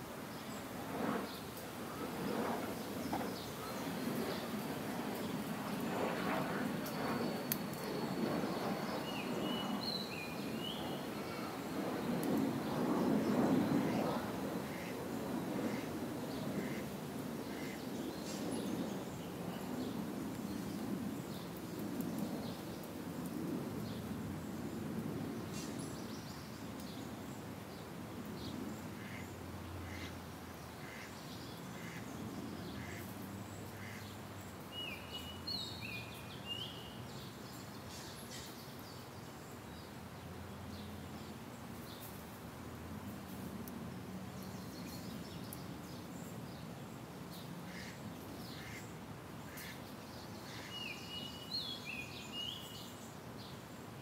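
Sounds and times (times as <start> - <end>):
faint bird calls: 17.5 - 17.9, 47.7 - 51.5.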